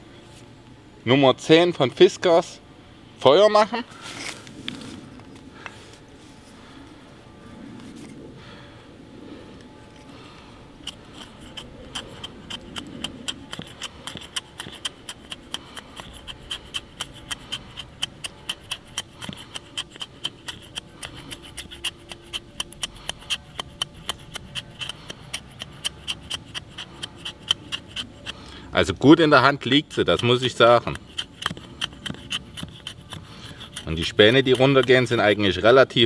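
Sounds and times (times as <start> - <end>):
axe scraping wood shavings: 10.8 - 35.7.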